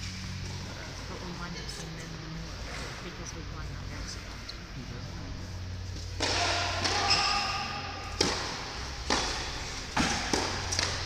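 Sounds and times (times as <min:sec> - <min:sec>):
tennis ball pops echoing: 0:08.0 - 0:11.0.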